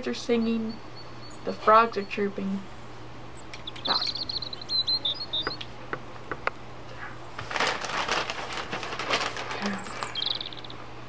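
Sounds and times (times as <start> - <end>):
newspaper rustling: 7.0 - 10.8.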